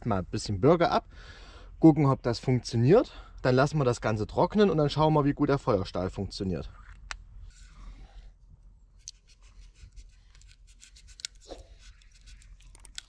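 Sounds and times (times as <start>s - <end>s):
knife scraping bark: 9.0s - 13.0s.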